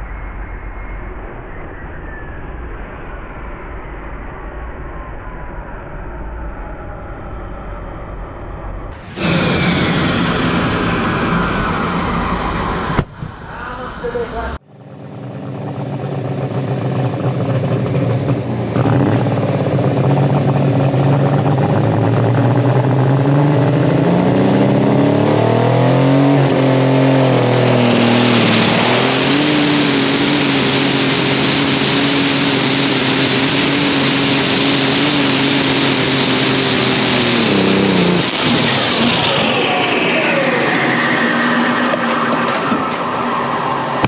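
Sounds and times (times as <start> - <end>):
diesel tractor engine at full throttle: 8.9 - 44.0
loud rushing hiss: 9.0 - 14.6, 28.0 - 40.6.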